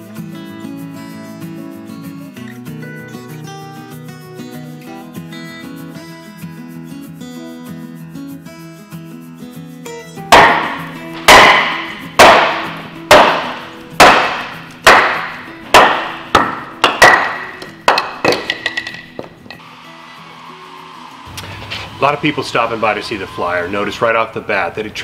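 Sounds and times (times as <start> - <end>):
acoustic guitar music: 0.0 - 25.0
hammer striking steel bar: 10.3 - 19.6.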